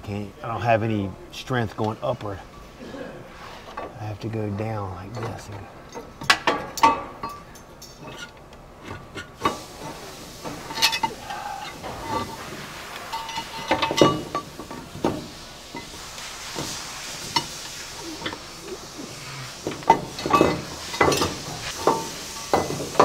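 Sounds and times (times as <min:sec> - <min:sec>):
metal clanks and scrapes: 0:05.0 - 0:18.9, 0:19.5 - 0:23.0.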